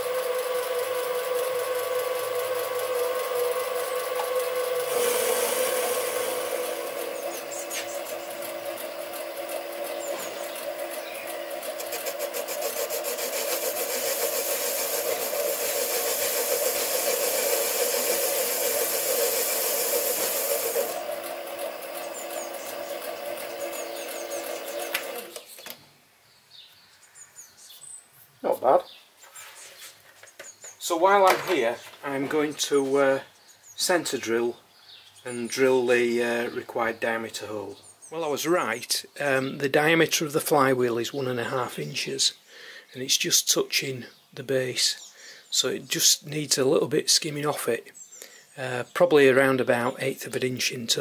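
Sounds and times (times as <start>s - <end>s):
lathe motor whine: 0.0s - 25.6s
hiss of metal cutting: 4.8s - 6.7s, 12.0s - 21.0s.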